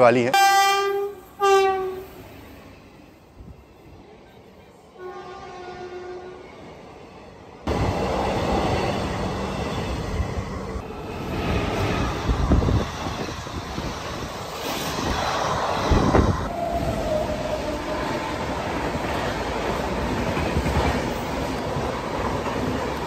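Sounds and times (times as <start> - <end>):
train wheels rumbling on rails: 6.3 - 23.0.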